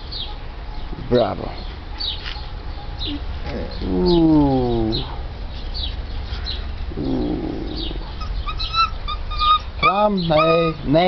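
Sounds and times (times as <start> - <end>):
dog moaning: 6.9 - 11.0.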